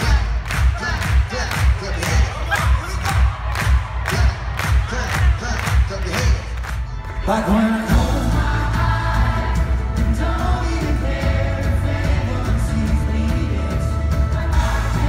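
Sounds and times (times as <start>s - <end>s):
heavy bass: 0.0s - 15.0s
live band playing: 4.6s - 15.0s
man singing: 7.2s - 9.4s, 10.0s - 15.0s.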